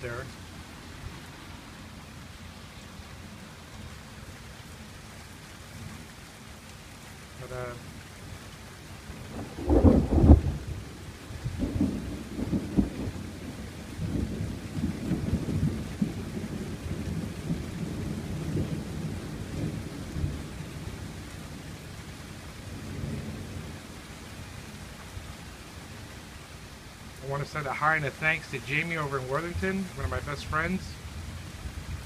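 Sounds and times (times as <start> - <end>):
rain pattering on gazebo roof: 0.0 - 32.0
rolling thunder: 9.2 - 21.6, 22.7 - 23.8.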